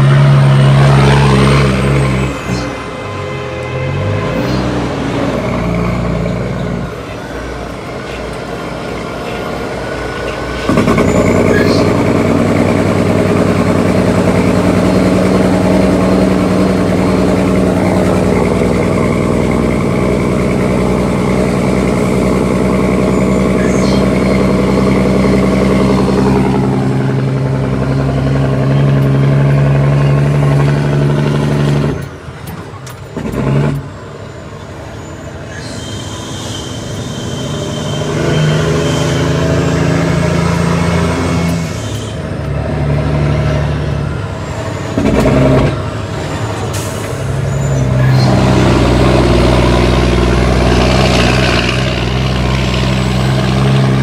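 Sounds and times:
diesel truck engine under load: 0.0 - 54.0.

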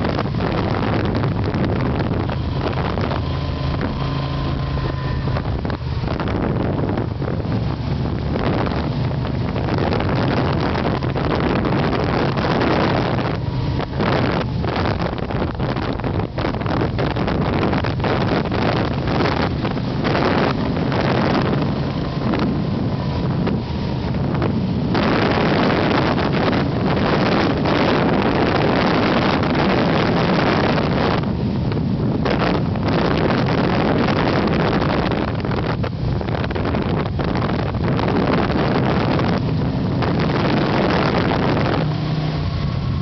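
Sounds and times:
motorcycle engine running: 0.0 - 43.0
wind rush on microphone: 0.0 - 43.0.

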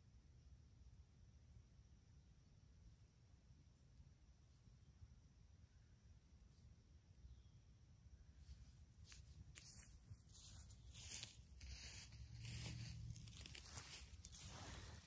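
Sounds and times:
grass rustling and crackling: 8.4 - 15.0.

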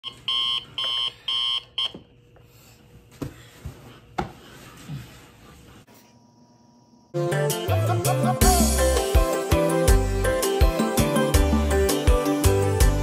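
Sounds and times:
electronic alarm beeping: 0.0 - 2.0.

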